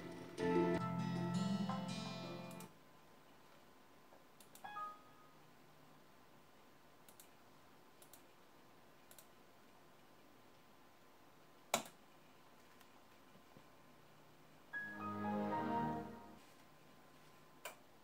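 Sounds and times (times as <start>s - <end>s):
computer mouse clicks: 4.4s - 4.7s, 7.0s - 7.4s, 8.0s - 8.3s, 9.0s - 9.4s, 11.7s - 12.0s.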